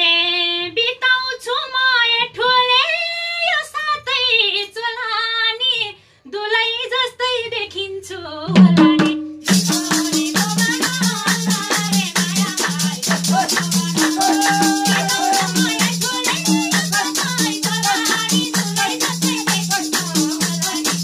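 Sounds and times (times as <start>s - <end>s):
woman singing folk verse: 0.0s - 21.0s
hand drum: 8.5s - 21.0s
handclaps: 9.5s - 21.0s
tambourine jingles: 9.5s - 21.0s.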